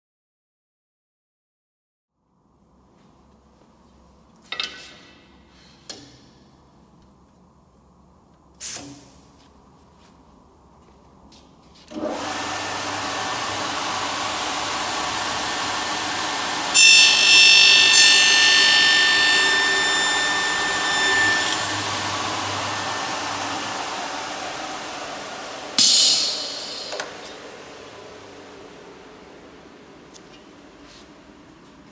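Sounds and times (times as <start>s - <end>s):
short loud hiss: 8.6s - 9.2s, 25.8s - 27.0s
milling machine running: 12.0s - 29.9s
cutter screeching on metal: 16.7s - 24.2s, 25.8s - 27.0s.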